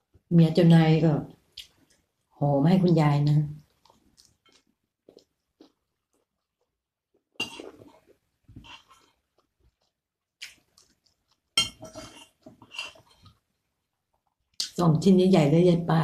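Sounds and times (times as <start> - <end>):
chewing: 3.6 - 14.6
spoon scraping ceramic bowl: 11.6 - 13.3.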